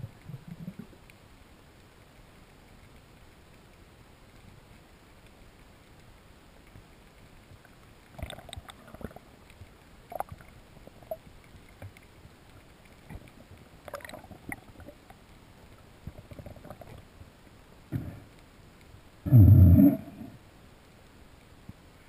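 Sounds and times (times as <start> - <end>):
faint underwater hiss: 0.0 - 22.0
small clicks: 0.1 - 17.6.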